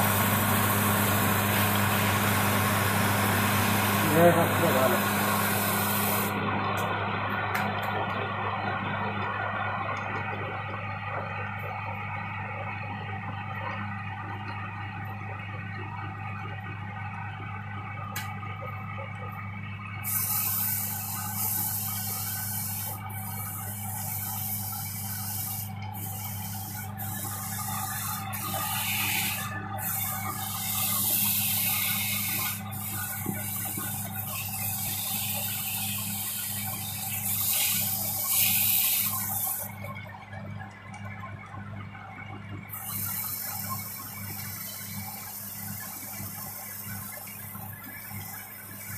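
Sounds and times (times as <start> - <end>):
lathe motor humming: 0.0 - 48.9
sandpaper hissing on spinning wood: 4.0 - 6.3, 20.0 - 39.7.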